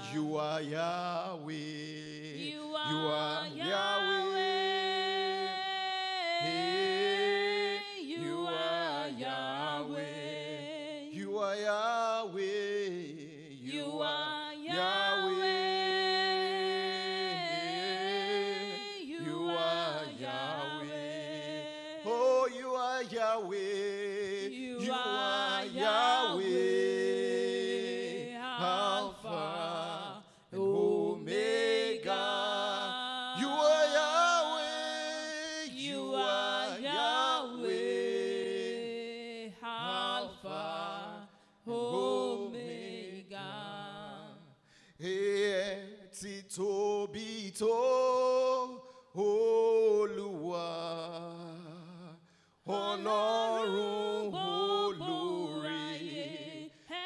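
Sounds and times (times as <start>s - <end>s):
woman singing along: 2.4s - 11.0s, 13.7s - 22.1s, 41.7s - 44.4s.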